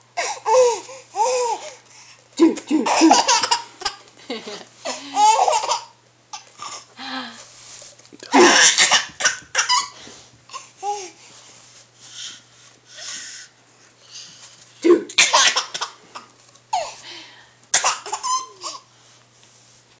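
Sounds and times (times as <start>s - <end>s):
baby laughing: 2.4s - 4.0s, 5.1s - 6.9s, 8.3s - 10.0s, 17.8s - 18.9s
baby breathing: 10.0s - 14.5s.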